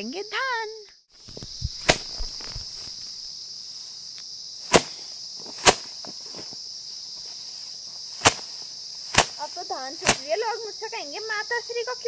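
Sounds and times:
insects droning: 0.0s - 12.0s
rice stalks slapped on stone: 1.2s - 3.1s, 4.7s - 6.4s, 8.2s - 9.4s, 10.0s - 10.3s.

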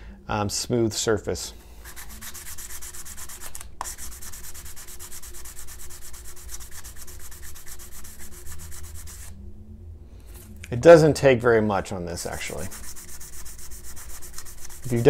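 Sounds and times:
plastic rubbed on sanding stick: 1.8s - 9.3s, 12.2s - 15.0s.

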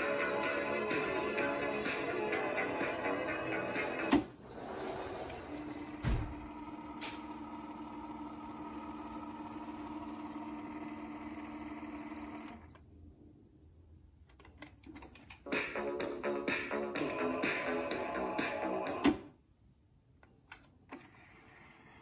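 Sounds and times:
music playing: 0.0s - 5.6s, 15.4s - 19.2s
tape motor whirring: 4.1s - 12.7s.

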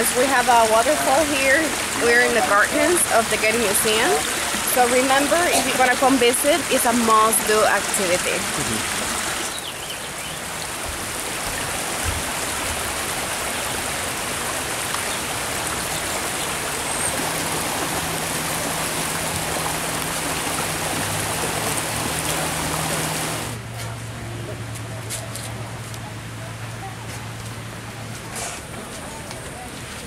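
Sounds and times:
water splashing over boulders: 0.0s - 23.8s.

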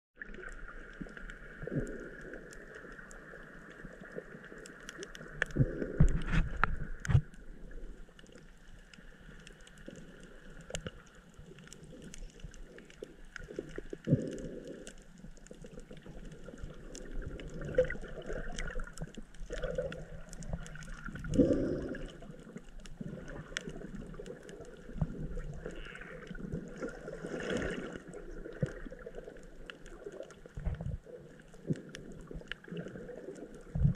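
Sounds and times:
faint scattered clicks: 0.4s - 33.9s
swishing surges of water: 9.0s - 33.9s
underwater watery hiss: 20.6s - 22.4s.

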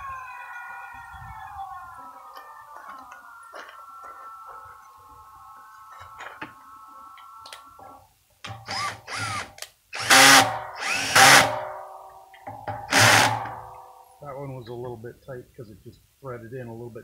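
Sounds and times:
cordless drill driving screws: 8.6s - 11.6s, 12.9s - 13.5s.

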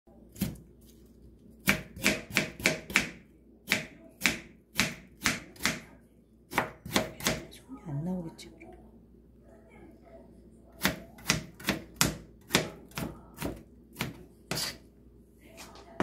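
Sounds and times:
knife chopping on plastic board: 1.6s - 5.8s, 6.5s - 7.4s, 10.8s - 14.8s.

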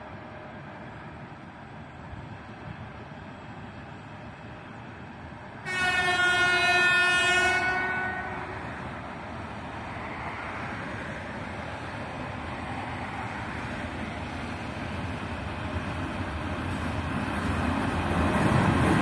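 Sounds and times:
freight train rumble: 0.0s - 19.0s
locomotive horn blast: 5.6s - 9.0s.

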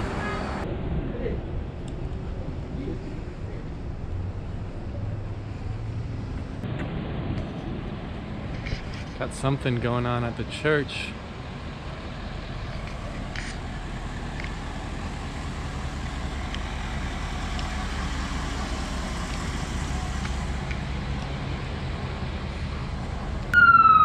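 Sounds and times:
street traffic: 0.0s - 24.0s
ambulance engine idling: 10.0s - 24.0s.

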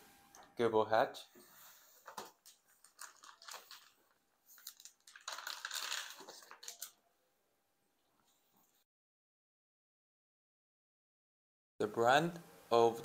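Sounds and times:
plastic packaging crinkling: 2.0s - 7.0s.

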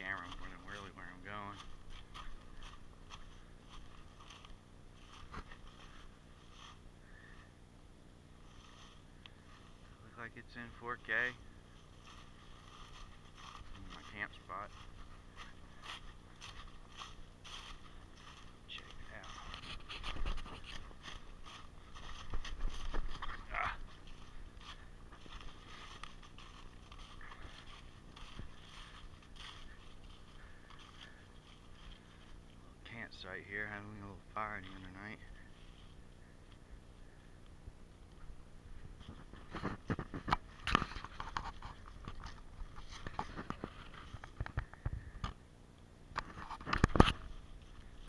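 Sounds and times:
footsteps crunching through dry leaves: 0.0s - 44.8s, 46.2s - 48.0s
camera handling noise: 46.2s - 47.3s.

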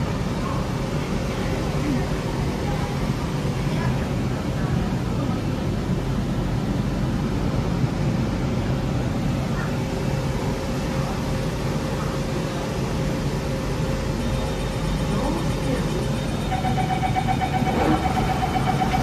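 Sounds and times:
train low hum and air noise: 0.0s - 19.0s
faint constant tone: 9.9s - 19.0s.

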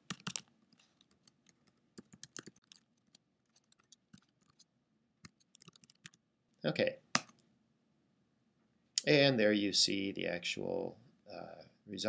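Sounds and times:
faint keyboard typing: 0.0s - 6.2s.

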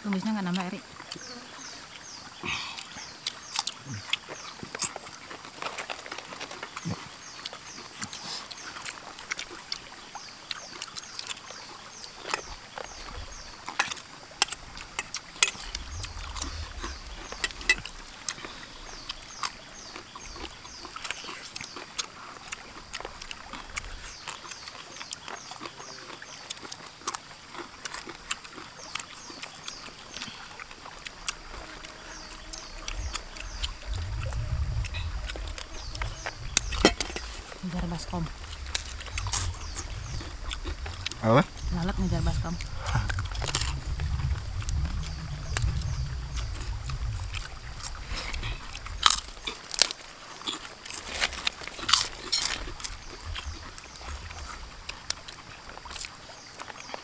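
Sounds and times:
chewing and lip-smacking: 2.7s - 57.0s
low rumble: 32.8s - 49.5s.

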